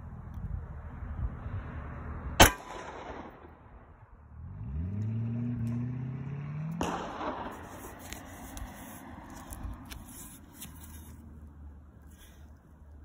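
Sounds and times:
pistol shot: 0:02.4 - 0:03.7, 0:06.8 - 0:07.8.

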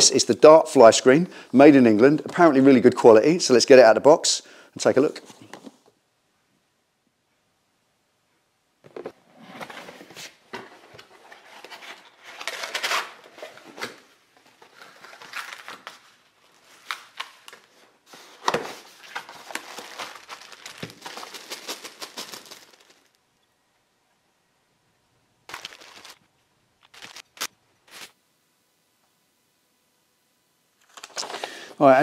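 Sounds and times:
plastic wrapping crinkling: 0:14.4 - 0:23.2, 0:25.5 - 0:28.2.

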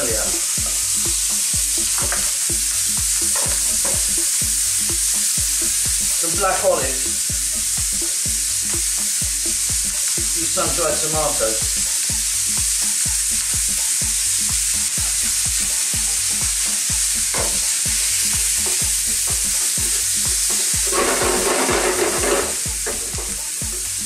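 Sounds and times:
food sizzling in grill pan: 0:00.0 - 0:24.0
wooden spatula scraping pan: 0:20.9 - 0:23.0.

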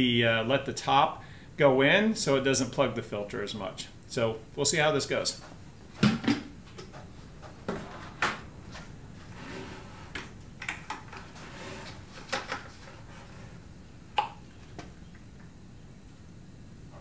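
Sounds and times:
plastic buckets knocking and scraping: 0:05.4 - 0:13.6.

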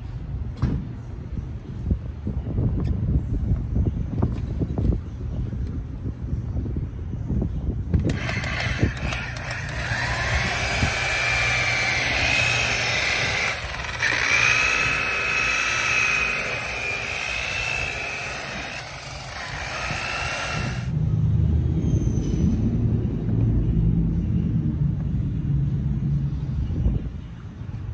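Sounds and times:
electric polisher motor whine: 0:08.1 - 0:20.9.

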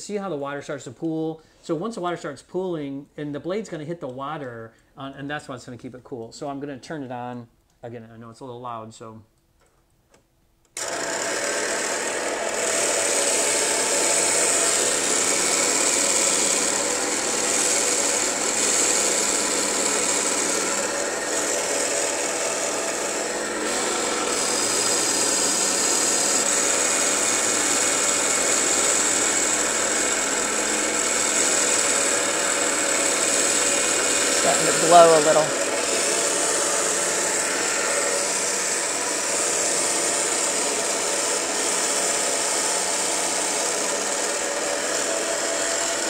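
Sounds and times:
band saw cutting glass: 0:10.8 - 0:46.0.

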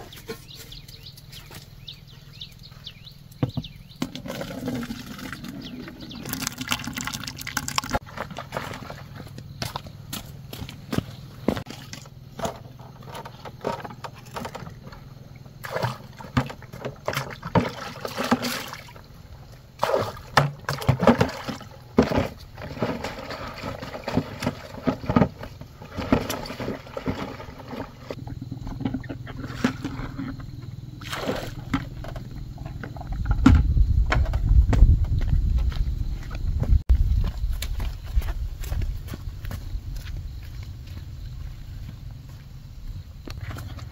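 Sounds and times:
water splashing and sloshing: 0:03.2 - 0:33.7.

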